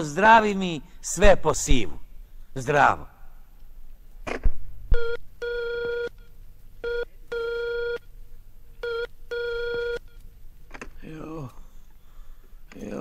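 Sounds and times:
short-long dial tone beeps: 5.0 - 8.1, 8.8 - 10.2.

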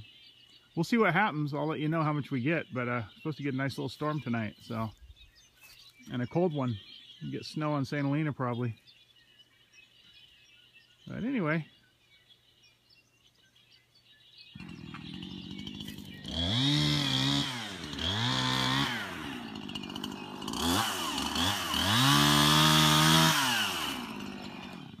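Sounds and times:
chainsaw revving and idling: 14.5 - 25.0.

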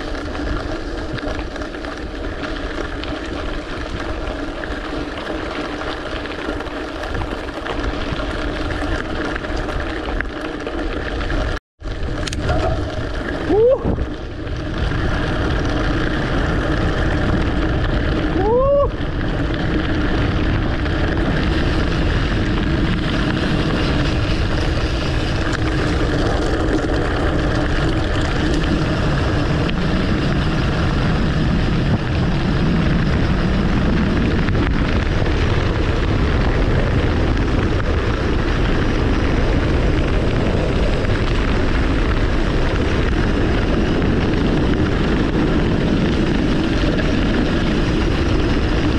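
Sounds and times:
bike tyres rolling on gravel: 0.0 - 48.9
wind on microphone: 11.4 - 48.9.

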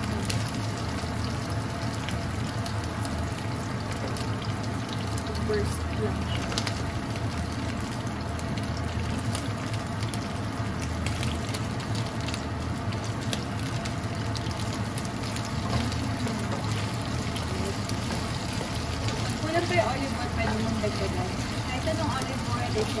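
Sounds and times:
steady low hum: 0.0 - 23.0
tomatoes sizzling in frying pan: 0.0 - 23.0
spatula stirring in pan: 13.2 - 23.0.

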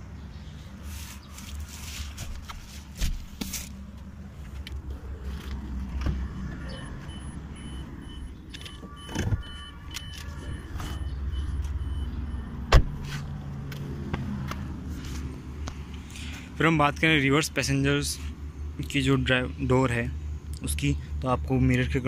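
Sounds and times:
car warning chime beeping: 6.2 - 12.9
car door latch click: 12.7 - 13.0.

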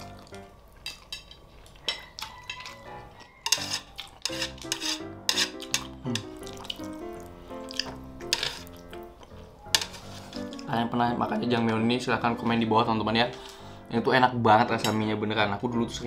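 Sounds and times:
background music: 0.0 - 0.7, 1.9 - 16.0
wet chewing: 0.0 - 10.7
chopsticks scraping metal tray: 2.4 - 6.4, 8.2 - 8.8, 9.7 - 10.7.

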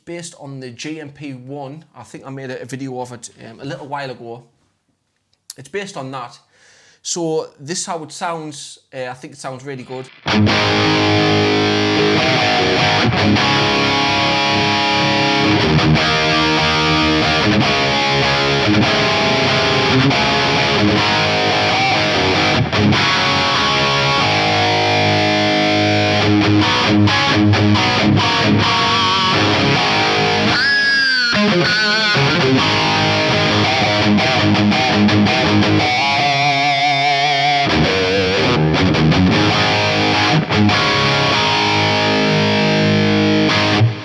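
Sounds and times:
distorted electric guitar: 9.8 - 44.0.

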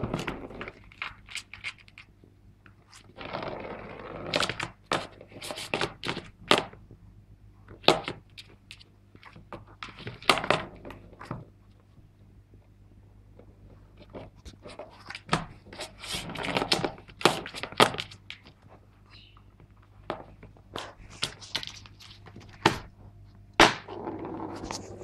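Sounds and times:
cat scratching cardboard: 2.7 - 6.6, 13.8 - 18.8, 20.0 - 22.9.

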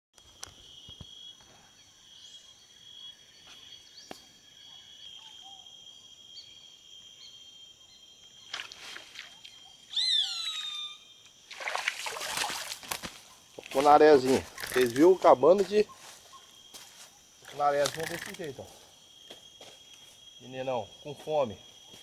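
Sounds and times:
insect chorus: 0.2 - 22.0
faint chirps: 7.2 - 11.4
loud animal call: 9.9 - 11.2.

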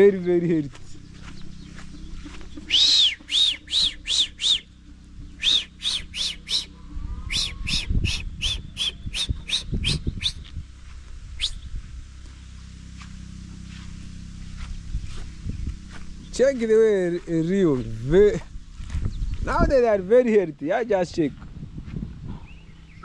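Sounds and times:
bird calling loudly: 0.8 - 10.5, 11.4 - 11.7.

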